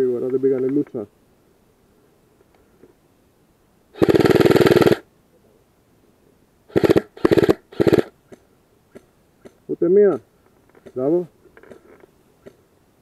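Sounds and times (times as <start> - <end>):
airsoft rifle firing bursts: 4.0 - 5.1, 6.7 - 8.2.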